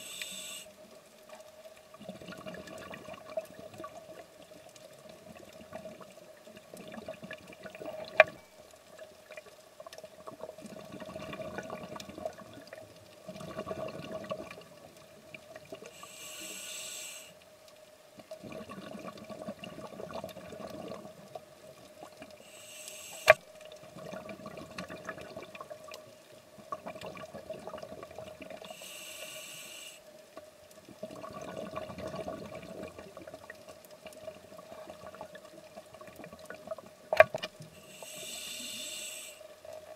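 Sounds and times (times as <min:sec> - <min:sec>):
steady hum: 0:00.0 - 0:00.7
regulator inhale hiss: 0:00.0 - 0:00.8, 0:15.8 - 0:17.4, 0:22.4 - 0:23.5, 0:28.6 - 0:30.1, 0:37.6 - 0:39.6
bubbling exhale underwater: 0:13.3 - 0:14.7.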